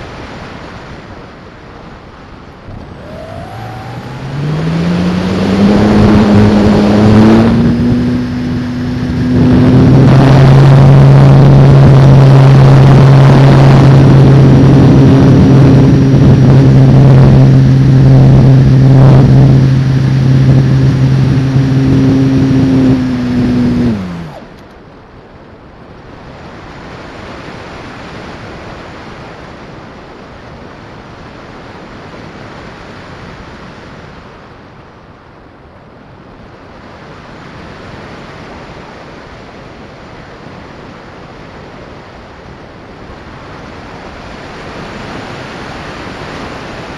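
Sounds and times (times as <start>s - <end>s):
air rushing past glider: 0.0s - 24.7s
propeller motor droning: 2.4s - 24.9s.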